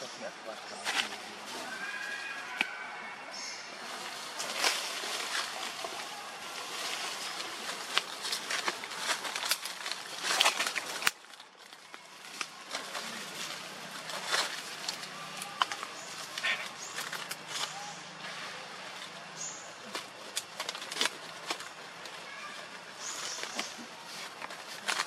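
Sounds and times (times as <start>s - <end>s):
dry leaves crackling: 0.7s - 25.0s.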